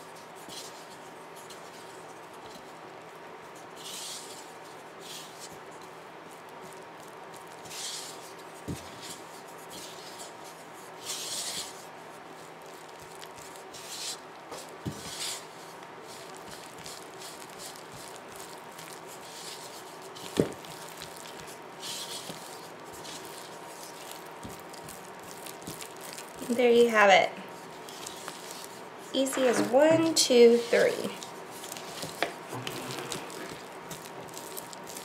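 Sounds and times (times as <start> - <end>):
spatula scraping batter in bowl: 27.7 - 35.0.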